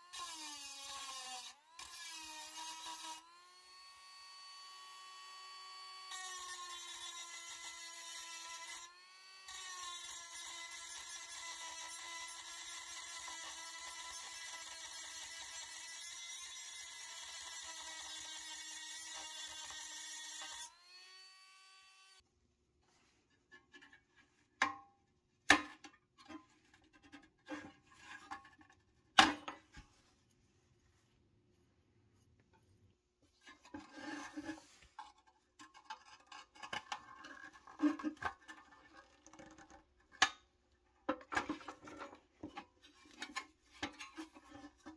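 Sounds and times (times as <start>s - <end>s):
light scraping and rattling: 32.5s - 39.8s.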